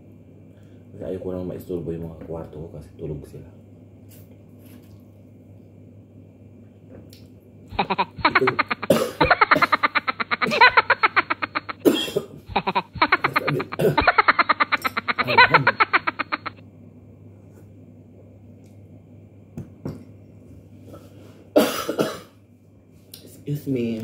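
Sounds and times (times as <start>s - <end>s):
person coughing: 8.4s - 9.8s, 11.8s - 12.4s, 13.3s - 14.2s, 21.6s - 22.4s.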